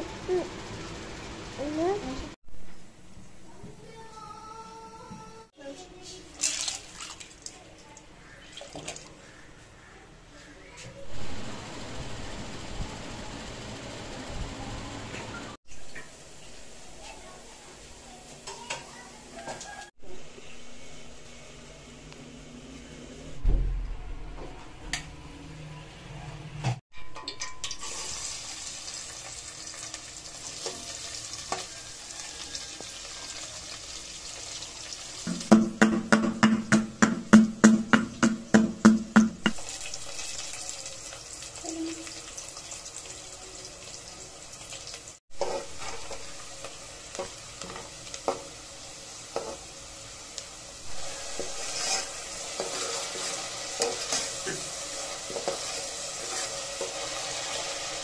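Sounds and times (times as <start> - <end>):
onions sizzling in oil: 15.7 - 20.4, 27.5 - 35.9, 39.4 - 58.0
metal spoon scraping a pot: 45.4 - 46.3, 51.0 - 57.6.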